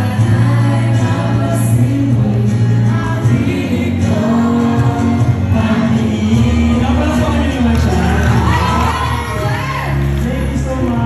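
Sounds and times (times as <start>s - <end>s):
loud music: 0.0s - 11.0s
audience cheering and shouting: 6.4s - 11.0s.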